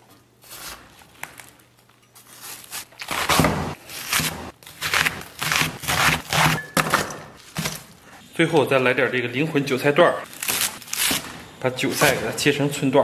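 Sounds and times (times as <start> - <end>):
cleaver chopping cabbage: 2.4 - 7.9, 10.3 - 12.4.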